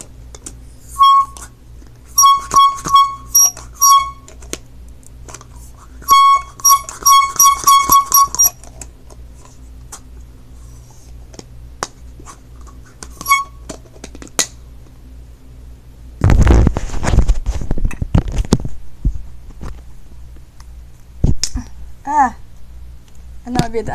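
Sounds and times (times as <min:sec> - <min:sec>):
air horn blasts: 0:00.9 - 0:01.5, 0:02.1 - 0:04.3, 0:06.0 - 0:08.5, 0:13.2 - 0:13.6
rumbling rustling noise: 0:16.2 - 0:20.2.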